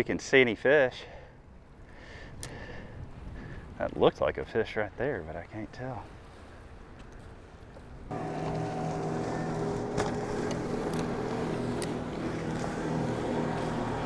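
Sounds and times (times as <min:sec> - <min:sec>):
motorboat engine running: 0:08.1 - 0:14.0.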